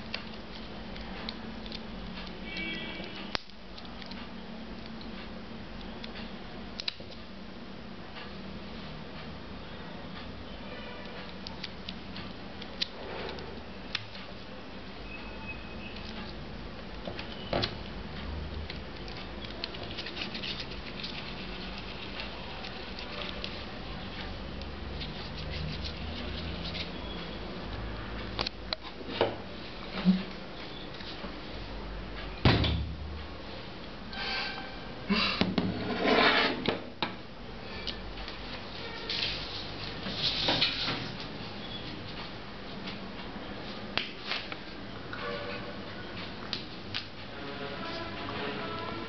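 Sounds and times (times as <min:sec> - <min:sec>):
rustling handling noise: 0:18.8 - 0:27.0.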